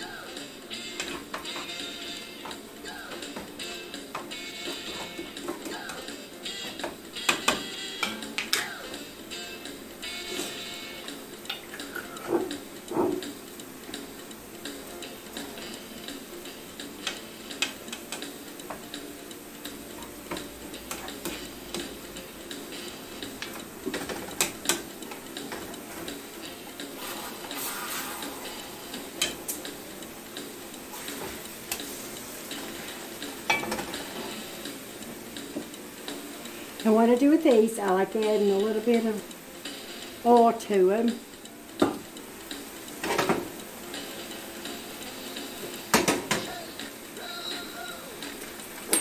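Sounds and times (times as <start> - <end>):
utensil scraping pans: 0.8 - 2.6, 4.2 - 8.3, 11.5 - 13.4
meat sizzling in a skillet: 26.2 - 36.8, 42.2 - 47.1.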